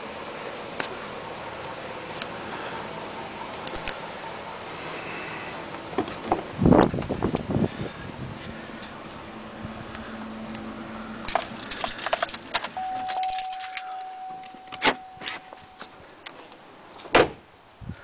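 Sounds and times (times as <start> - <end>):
keys jangling and clicking: 11.3 - 15.9
thin steady beep: 12.8 - 16.0
door thudding shut: 17.1 - 17.4.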